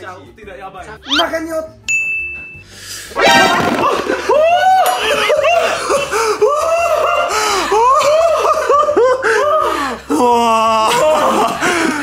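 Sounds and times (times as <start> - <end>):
short held voiced tone: 1.1 - 1.3
people laughing hard: 3.2 - 12.0.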